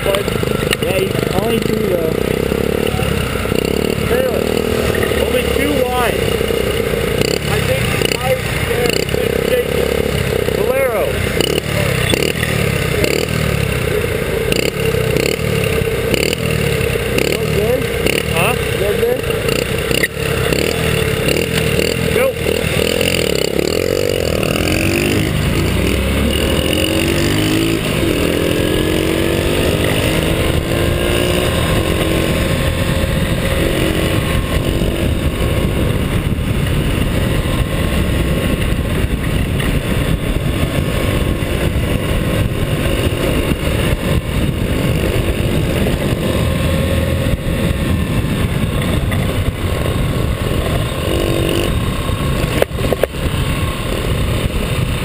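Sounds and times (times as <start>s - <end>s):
scooter engines: 0.0s - 55.0s
wind noise on microphone: 23.2s - 55.0s.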